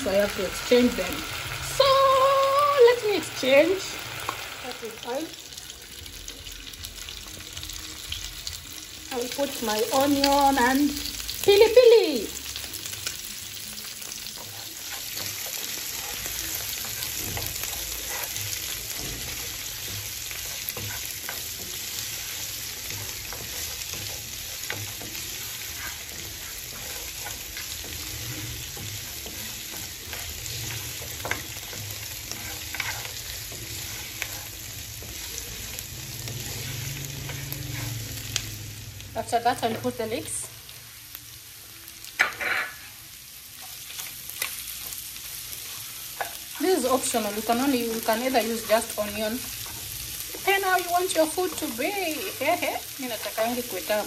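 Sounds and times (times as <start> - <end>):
meat and onion sizzling in oil: 0.0 - 54.0
wooden spatula scraping pan: 14.0 - 35.8, 36.4 - 38.1.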